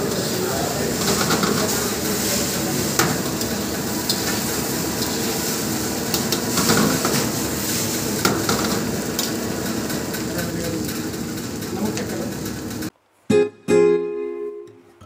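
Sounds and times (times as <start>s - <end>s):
rice sizzling in a wok: 0.0s - 10.3s.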